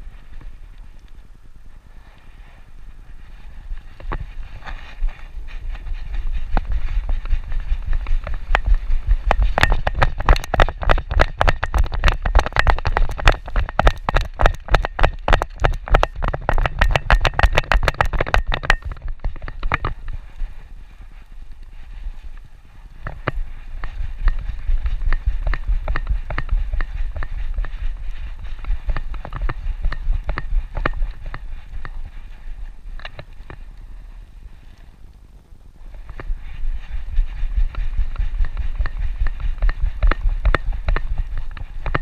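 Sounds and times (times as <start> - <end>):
low rumble of harness movement: 0.0 - 10.2
dog claws clicking on pavement: 4.0 - 20.5, 23.0 - 33.9, 36.1 - 42.0.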